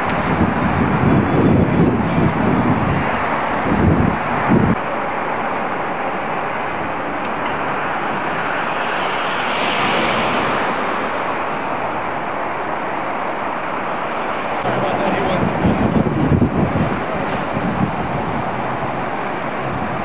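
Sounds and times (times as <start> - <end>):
road traffic hiss: 0.0 - 20.0
vehicle driving past: 6.0 - 15.1.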